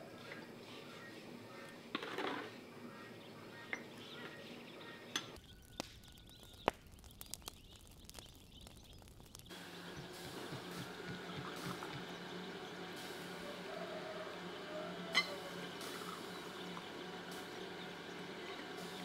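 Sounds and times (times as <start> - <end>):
faint bird chirp: 0.1 - 1.9, 2.7 - 12.8
liquid pouring and splashing: 6.5 - 9.5.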